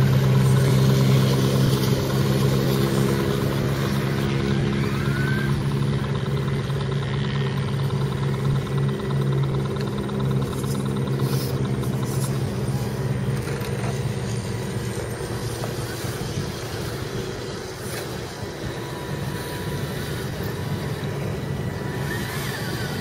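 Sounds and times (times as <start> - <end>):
low hum: 0.0 - 23.0
toy truck electric motors whirring: 9.8 - 23.0.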